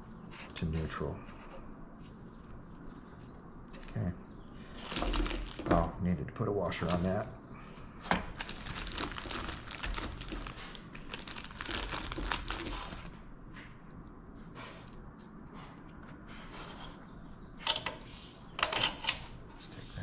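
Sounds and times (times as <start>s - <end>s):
packaging crinkling and rustling: 4.7s - 5.8s, 8.2s - 13.1s
metal bolt and washer clicks: 18.6s - 19.3s.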